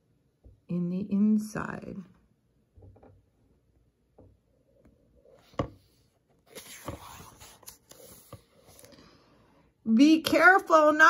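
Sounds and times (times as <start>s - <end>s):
book pages turning: 5.4s - 9.0s.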